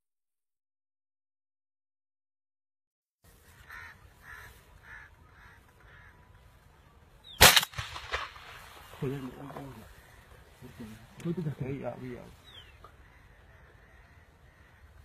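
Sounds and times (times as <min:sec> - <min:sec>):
bird calling: 0:03.3 - 0:07.8, 0:08.6 - 0:15.0
shotgun shot: 0:07.4 - 0:08.8.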